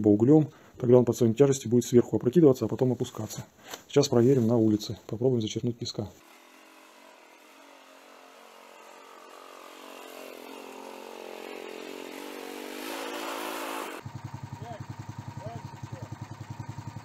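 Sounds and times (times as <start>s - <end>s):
small tractor engine running: 6.2s - 17.0s.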